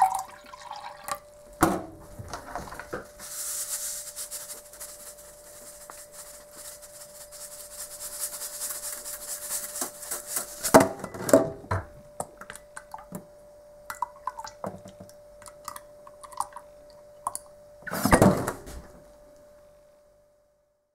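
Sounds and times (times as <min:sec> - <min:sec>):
liquid poured into a glass: 0:00.0 - 0:01.3.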